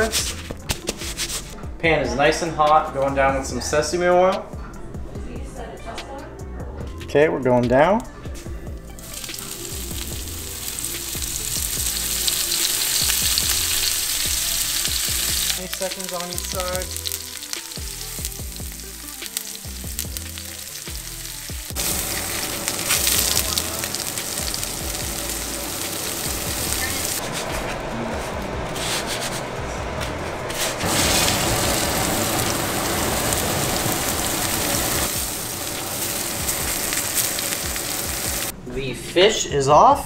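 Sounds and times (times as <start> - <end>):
fish searing in oil: 9.0 - 27.2, 30.8 - 38.5.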